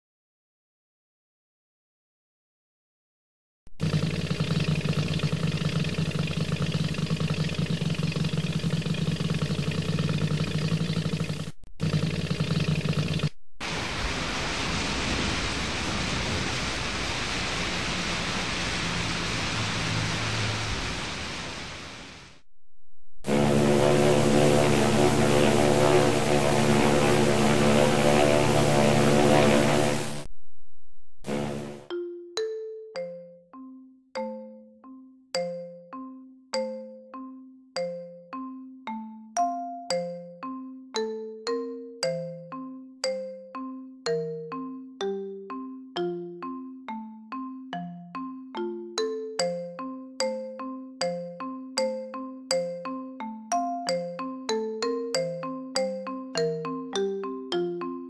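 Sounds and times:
boat engine idling: 3.8 - 13.3
ship engine drone: 3.8 - 22.2, 23.2 - 30.3, 31.2 - 31.9.

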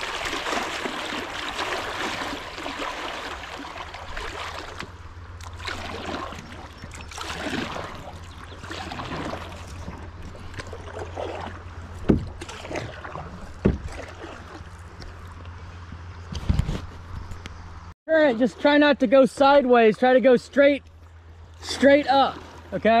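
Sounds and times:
river water splashing: 0.0 - 16.2, 17.7 - 23.0
sharp thumps: 12.0 - 12.6.

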